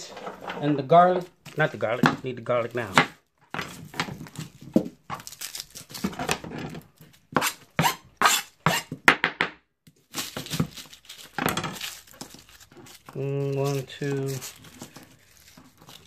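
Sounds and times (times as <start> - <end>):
mesh bag rustling and tearing: 4.2 - 6.3, 10.0 - 16.0
papery skins crackling: 4.2 - 6.3, 10.0 - 16.0.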